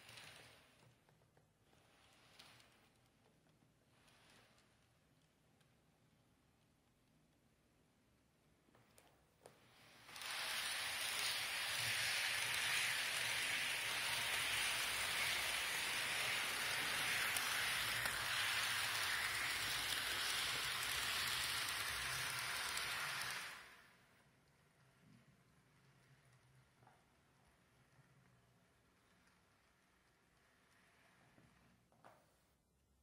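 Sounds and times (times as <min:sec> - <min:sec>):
model train running on track: 0:10.0 - 0:24.4.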